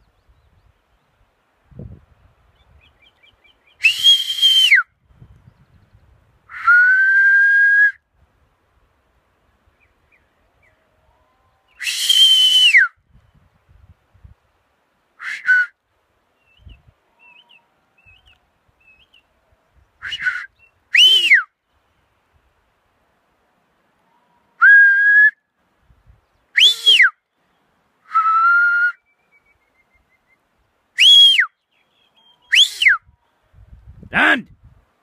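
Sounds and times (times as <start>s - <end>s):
shepherd whistle blasts: 3.8s - 4.9s, 6.5s - 8.0s, 11.8s - 13.0s, 15.2s - 15.7s, 20.0s - 21.5s, 26.6s - 27.2s, 31.0s - 31.5s, 32.5s - 33.0s.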